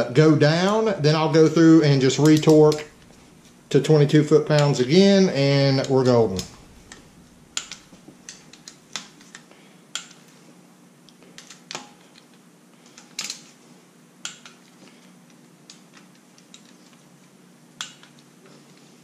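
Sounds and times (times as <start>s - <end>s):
torque wrench clicking: 2.2s - 3.0s, 7.6s - 8.8s.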